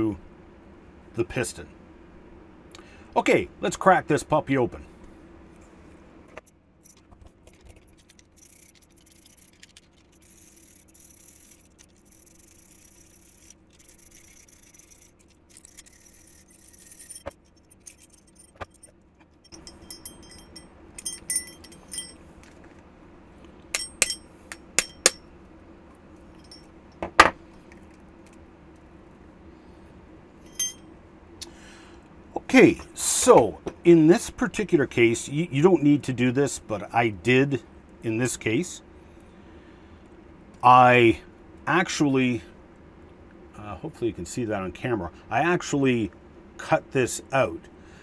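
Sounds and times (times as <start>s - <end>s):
metallic clinks and knocks: 6.8s - 22.8s, 23.8s - 25.3s, 26.3s - 27.4s, 30.5s - 30.8s.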